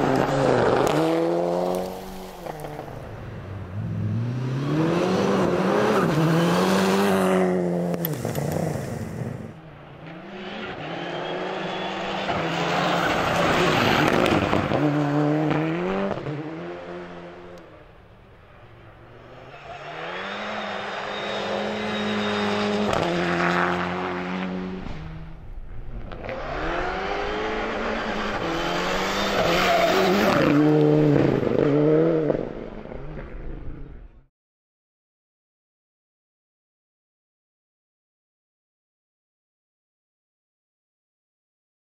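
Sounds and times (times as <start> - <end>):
rally car engine revving: 0.0 - 3.0, 3.7 - 17.7, 18.6 - 34.1.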